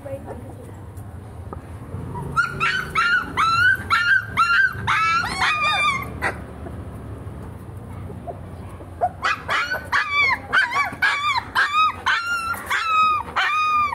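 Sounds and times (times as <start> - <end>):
puppy yapping: 2.1 - 6.4, 8.2 - 13.9.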